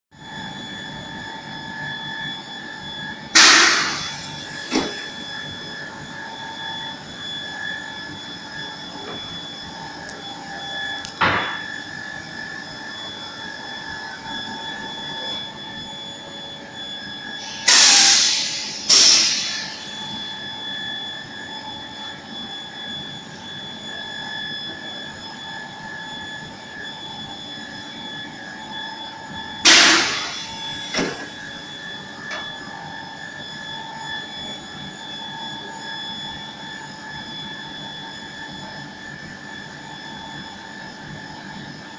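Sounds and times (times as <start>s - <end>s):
air hiss bursts: 17.4s - 19.8s.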